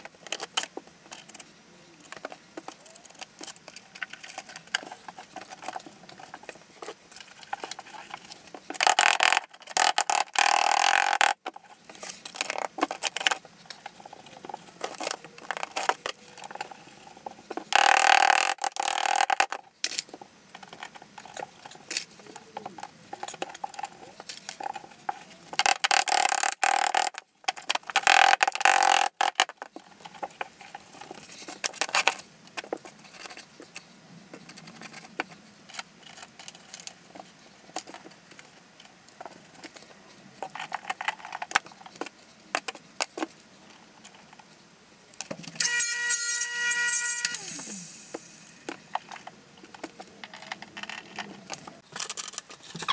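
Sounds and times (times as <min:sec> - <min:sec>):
tiles rubbing and scraping: 0:46.4 - 0:52.9.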